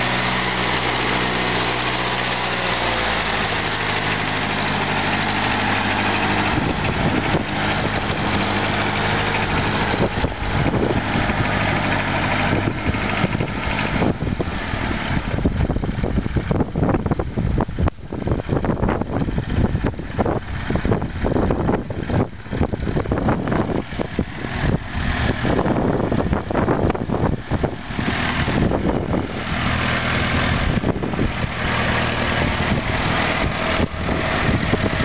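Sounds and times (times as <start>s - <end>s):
tractor diesel engine running: 0.0s - 35.0s
wind buffeting microphone: 0.1s - 35.0s.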